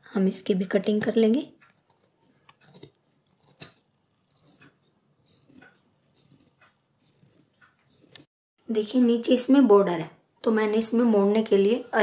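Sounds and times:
shears snipping fabric: 1.6 - 8.3.

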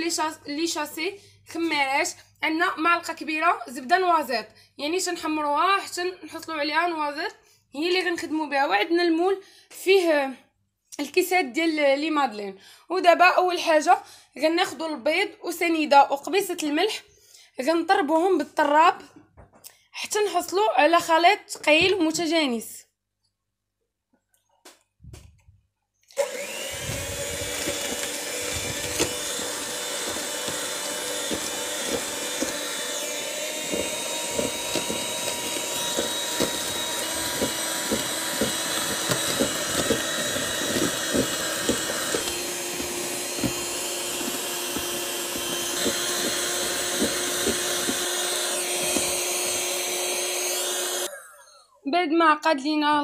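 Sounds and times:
electric hand mixer whipping: 26.1 - 51.5.

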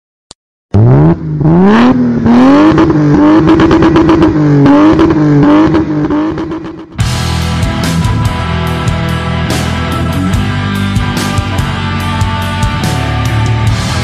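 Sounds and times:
engine revving hard: 0.7 - 7.0.

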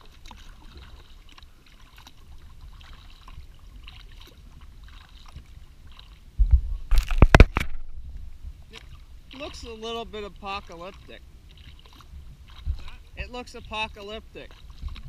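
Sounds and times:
paddle splashes and drips: 0.0 - 15.0
low rumble: 6.3 - 9.4.

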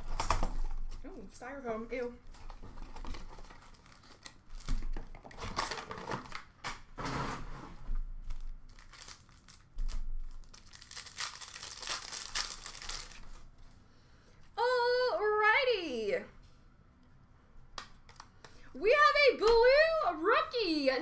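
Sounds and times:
card packs crinkling and rustling: 0.0 - 1.1, 2.3 - 6.9, 8.2 - 13.5.

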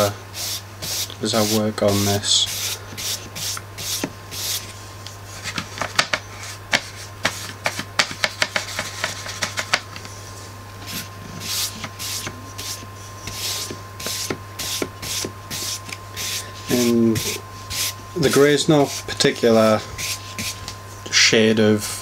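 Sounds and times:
steady low hum: 0.0 - 22.0
paintbrush scrubbing board: 0.4 - 4.8, 6.4 - 9.8, 10.9 - 20.6.

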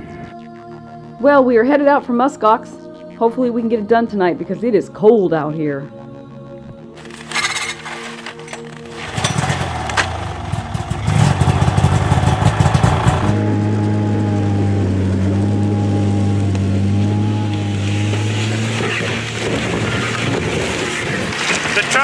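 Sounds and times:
snowmobile engine running: 7.0 - 22.0.

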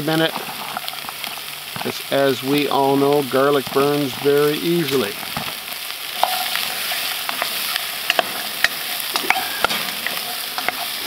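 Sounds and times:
vegetables sizzling in a metal pan: 0.0 - 11.0
wooden spoon scraping and tapping pan: 6.2 - 11.0.

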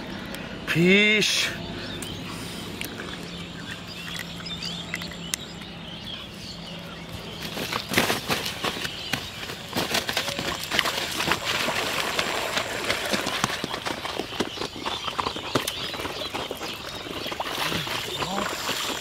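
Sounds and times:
footsteps splashing through water: 2.7 - 5.8, 7.2 - 19.0.

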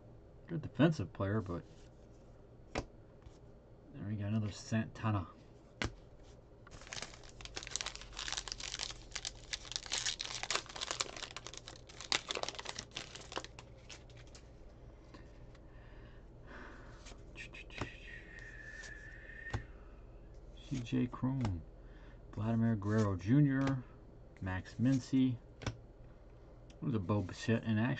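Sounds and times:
handling of cards: 5.7 - 15.6
wrapper torn open and crinkled: 6.7 - 14.4.

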